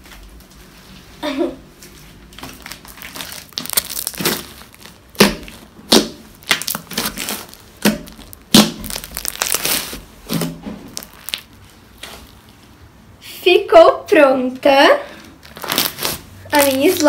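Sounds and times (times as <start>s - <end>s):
slime squelching: 2.3s - 12.7s, 15.4s - 17.0s.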